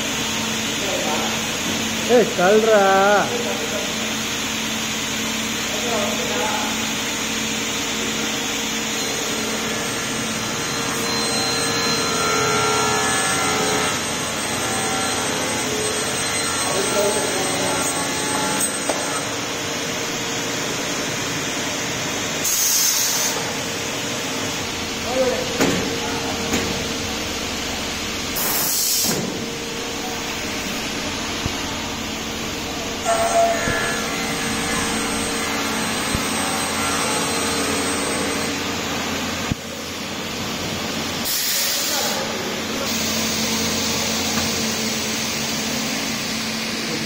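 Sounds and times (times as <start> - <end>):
machine hiss and hum: 0.0 - 47.0
compressed air burst: 22.4 - 23.5.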